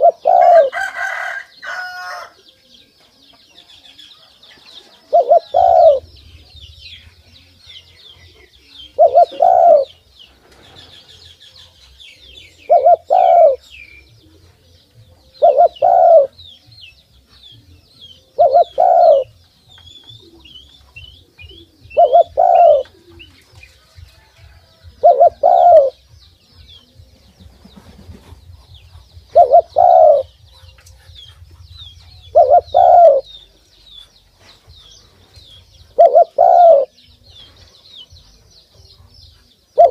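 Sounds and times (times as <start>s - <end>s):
dove cooing: 0.0s - 2.3s, 4.0s - 6.1s, 8.2s - 10.0s, 10.6s - 16.4s, 18.2s - 19.4s, 20.0s - 26.0s, 27.8s - 33.5s, 35.9s - 37.0s
small birds chirping: 0.0s - 39.9s.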